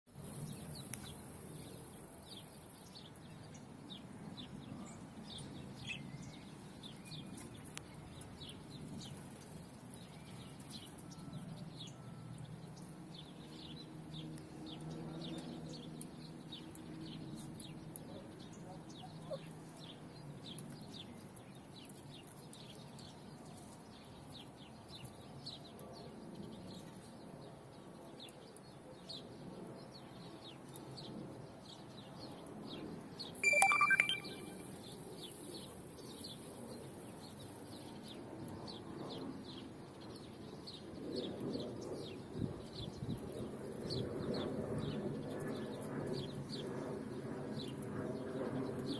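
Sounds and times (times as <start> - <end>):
shrill rising bird call: 33.4 - 34.6
birds chirping: 33.4 - 34.7.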